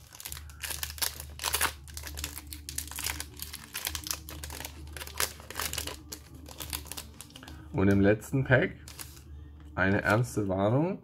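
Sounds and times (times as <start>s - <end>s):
foil wrapper crinkling and tearing: 0.0s - 7.6s, 8.8s - 9.3s.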